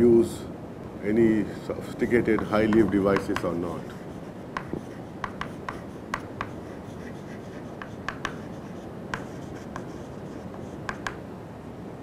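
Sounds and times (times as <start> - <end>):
steady background hiss: 0.0 - 12.0
chalk tapping on chalkboard: 2.2 - 11.2.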